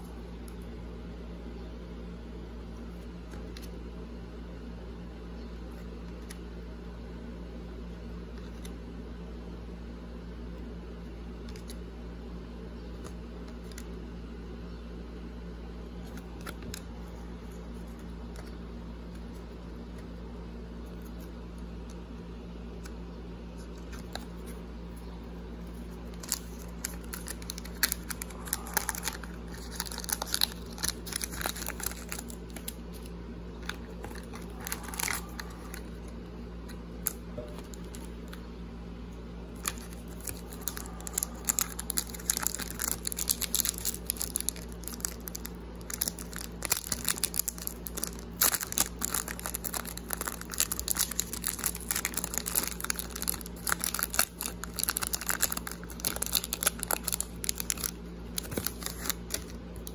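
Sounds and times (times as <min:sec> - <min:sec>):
steady low hum: 0:00.0 - 0:59.9
foil wrappers crinkling and tearing: 0:26.0 - 0:36.0, 0:39.6 - 0:59.9.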